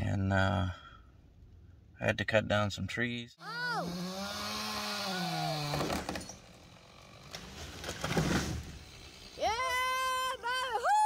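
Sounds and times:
chainsaw cutting: 3.6 - 9.9
wood cracking as tree falls: 4.9 - 8.8.

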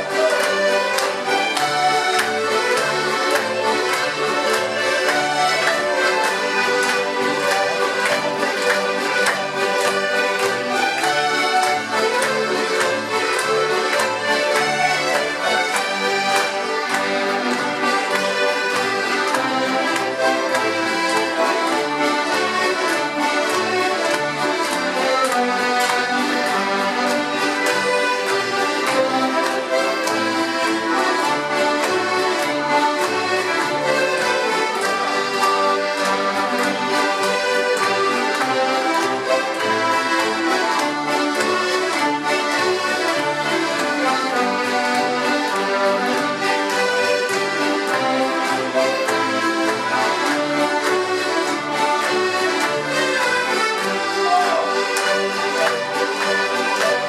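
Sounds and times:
accordion: 0.0 - 57.0
fiddles playing folk dance tune: 0.0 - 57.0.

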